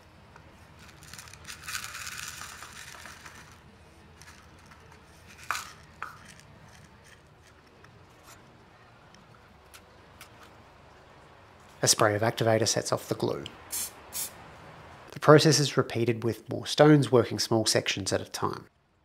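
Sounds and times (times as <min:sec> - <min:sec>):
small stones rattling and scraping: 0:00.8 - 0:03.6, 0:04.2 - 0:08.3.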